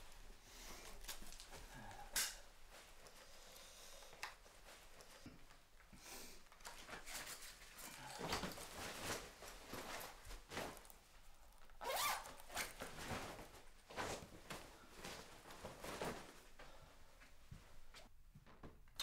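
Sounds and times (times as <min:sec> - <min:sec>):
fabric rustling: 0:06.6 - 0:18.1.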